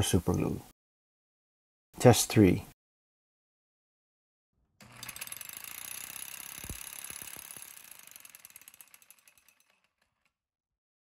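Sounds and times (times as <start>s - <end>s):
rapid metallic rattle: 4.8s - 10.3s.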